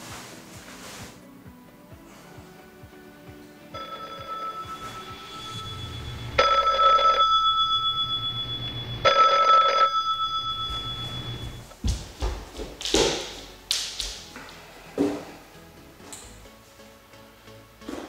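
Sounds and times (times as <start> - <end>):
desk telephone ringing: 3.7 - 11.6.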